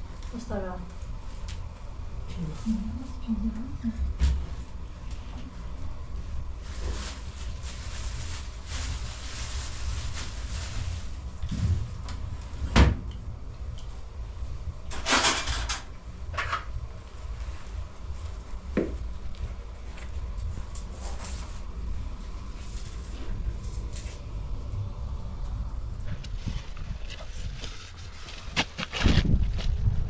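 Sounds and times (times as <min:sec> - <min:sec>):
steady low rumble: 0:00.0 - 0:30.0
rustling scrape: 0:05.5 - 0:12.6, 0:19.8 - 0:24.4, 0:26.0 - 0:30.0.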